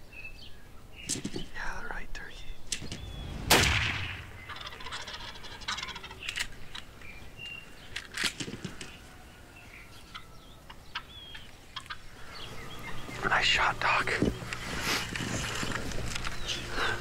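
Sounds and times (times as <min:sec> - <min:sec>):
shotgun shot: 0:02.9 - 0:04.5
turkeys gobbling: 0:04.0 - 0:07.1, 0:08.5 - 0:13.2.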